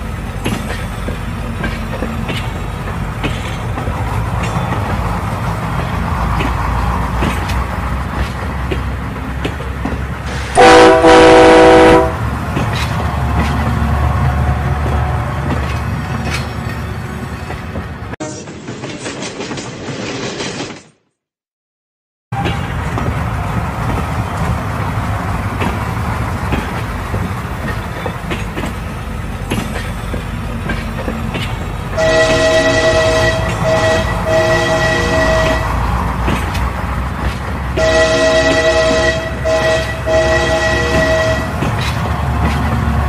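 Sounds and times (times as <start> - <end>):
train rumble and rail clatter: 0.0 - 21.0, 22.3 - 43.0
locomotive horn blasts: 10.6 - 12.2, 32.0 - 35.9, 37.8 - 41.7.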